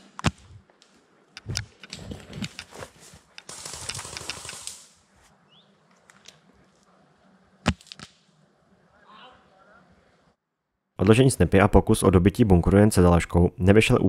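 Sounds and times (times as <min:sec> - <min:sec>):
rustling: 0:00.0 - 0:08.4.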